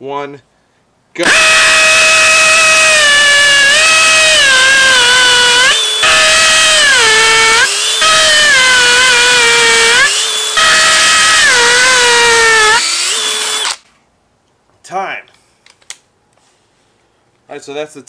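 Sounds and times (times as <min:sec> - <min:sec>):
hammer drill boring into concrete: 0:01.2 - 0:13.8.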